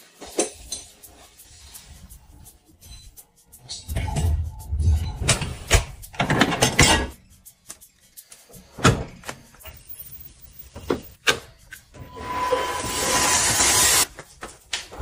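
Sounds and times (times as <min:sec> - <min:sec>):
dishwasher racks rattling: 0:05.2 - 0:07.2.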